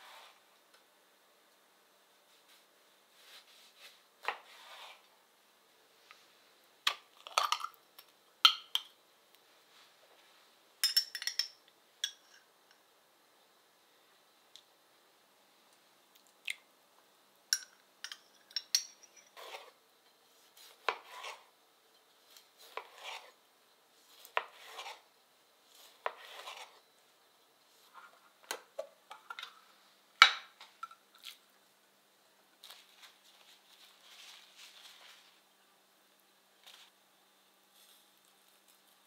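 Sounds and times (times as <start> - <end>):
metal spoon clinking pot: 10.8 - 12.4, 17.5 - 19.4
knife slicing tomato: 20.4 - 21.5, 22.3 - 23.3, 24.1 - 25.0, 25.7 - 26.8
paper towel rustling: 32.6 - 35.4.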